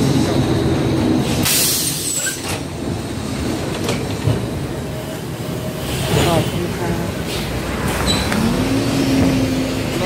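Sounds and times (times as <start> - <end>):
bus engine and road rumble: 0.0 - 10.0.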